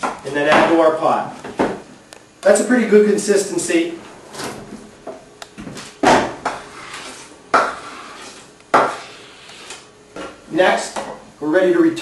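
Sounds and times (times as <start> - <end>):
knife scraping cutting board: 6.6 - 9.9.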